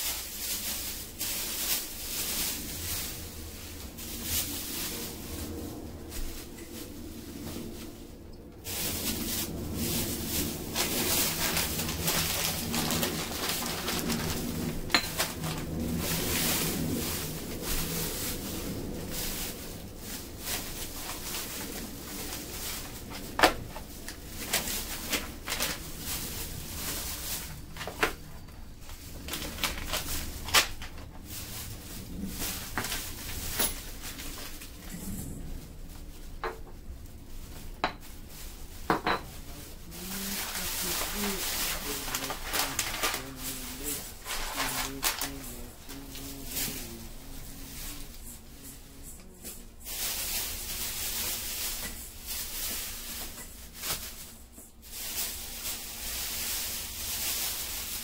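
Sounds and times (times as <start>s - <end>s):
plastic bags rustling: 0.0s - 58.0s
items knocking on tile floor: 11.8s - 15.7s, 37.8s - 38.1s, 38.8s - 39.4s.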